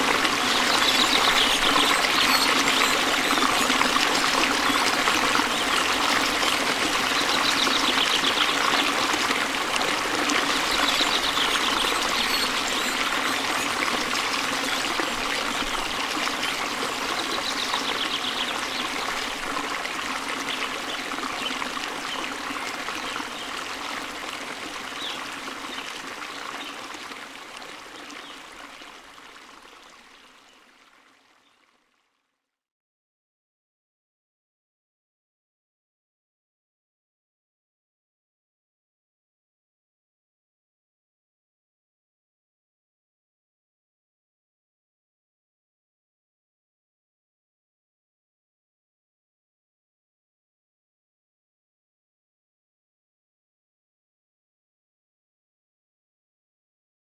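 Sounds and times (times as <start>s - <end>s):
running water rushing and trickling: 0.0s - 32.1s.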